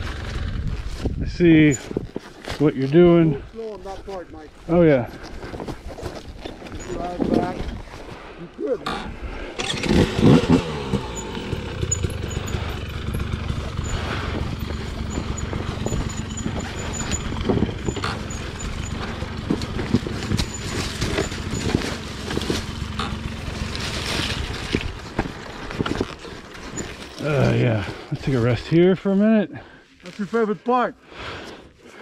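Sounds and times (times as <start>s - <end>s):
dirt bike engine running: 0.0s - 1.8s, 8.9s - 28.6s
bike knocks and rattles: 9.9s - 27.2s.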